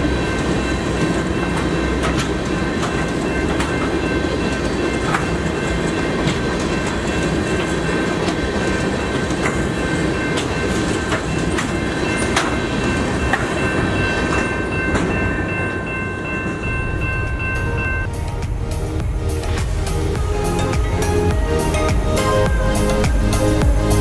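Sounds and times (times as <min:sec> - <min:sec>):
wheels clicking over rail joints: 0:00.0 - 0:17.4
crossing signal bell ringing: 0:00.0 - 0:24.0
freight train rumbling: 0:00.0 - 0:24.0.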